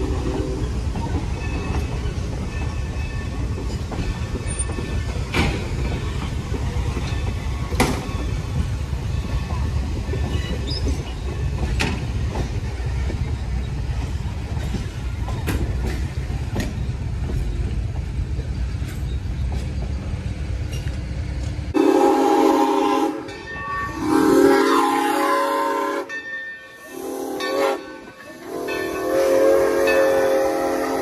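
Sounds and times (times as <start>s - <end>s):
train coaches rumbling past: 0.0s - 31.0s
train wheel clicks: 0.7s - 21.7s
steam locomotive chime whistle: 21.7s - 31.0s.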